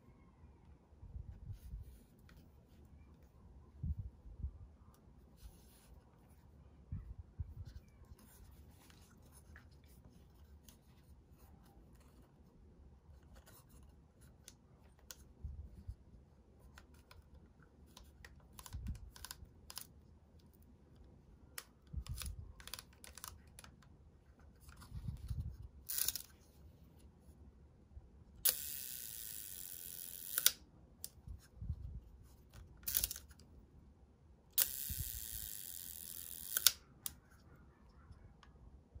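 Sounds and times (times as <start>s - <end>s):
shutter escapement whirring: 25.9s - 26.3s, 28.4s - 30.6s, 32.8s - 33.3s, 34.6s - 37.2s.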